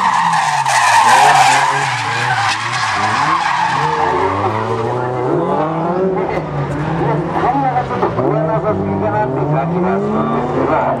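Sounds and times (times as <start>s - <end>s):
tyres squealing: 0.0s - 5.1s
car engine revving: 0.0s - 11.0s.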